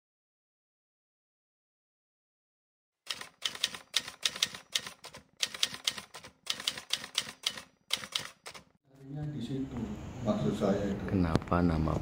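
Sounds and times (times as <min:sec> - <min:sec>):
typewriter key clacks: 0:03.1 - 0:08.7.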